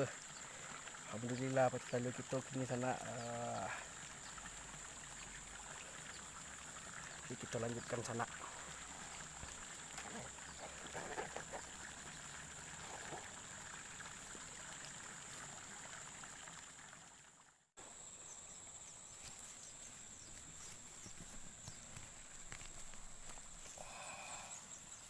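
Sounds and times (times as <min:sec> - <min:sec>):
steady high-pitched hiss: 0:00.0 - 0:15.6, 0:17.8 - 0:25.0
faint trickling water: 0:00.0 - 0:25.0.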